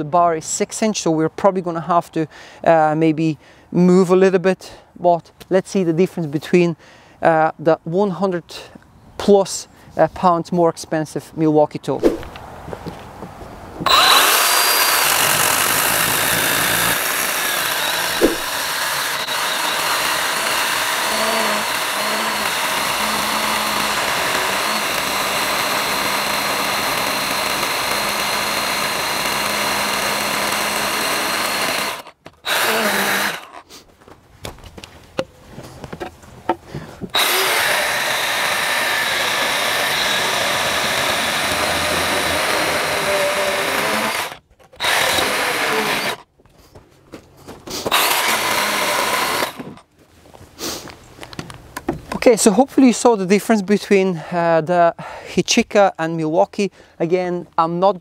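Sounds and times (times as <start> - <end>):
chainsaw cutting log: 13.8 - 33.6, 37.1 - 46.3, 47.7 - 49.9.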